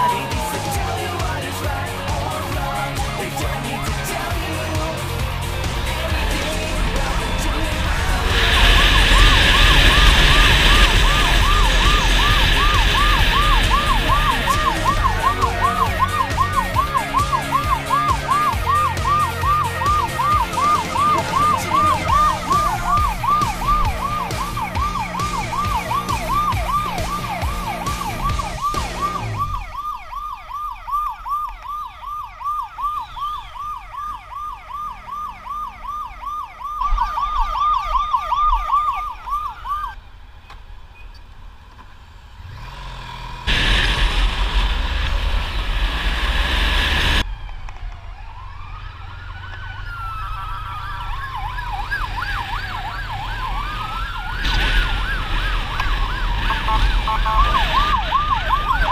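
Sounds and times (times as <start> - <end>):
loud rushing noise: 0.0 - 29.5, 43.4 - 47.3, 52.4 - 58.9
motorcycle engine running: 0.0 - 29.5
siren wailing: 0.0 - 40.0, 43.5 - 58.9
siren yelping: 0.0 - 40.0, 46.7 - 58.9.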